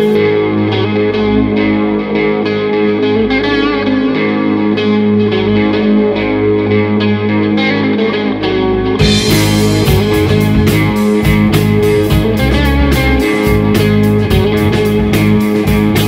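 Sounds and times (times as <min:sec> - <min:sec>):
distorted electric guitar riff: 0:00.0 - 0:16.0
sharp regular hits: 0:09.0 - 0:16.0.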